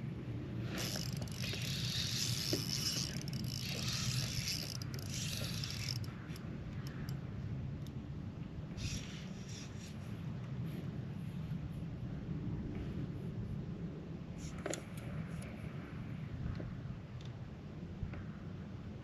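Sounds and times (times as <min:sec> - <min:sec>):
steady low rumble: 0:00.0 - 0:08.8
spinning reel whirring: 0:00.6 - 0:07.2, 0:08.8 - 0:10.0.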